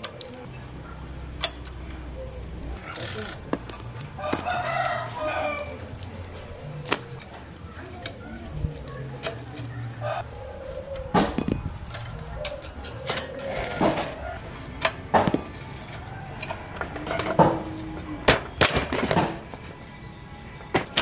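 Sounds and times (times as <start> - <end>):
wrench clinking on bicycle axle: 1.4 - 5.7.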